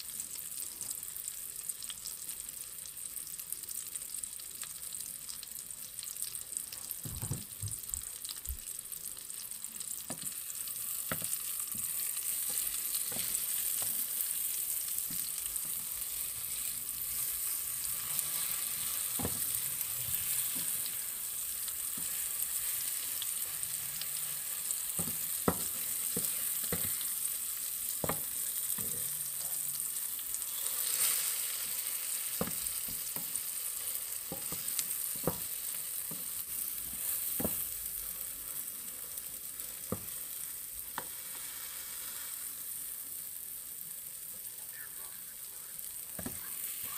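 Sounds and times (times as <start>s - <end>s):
food sizzling in oil: 0.0s - 46.9s
spatulas scraping a pan: 11.1s - 21.1s, 30.5s - 33.2s.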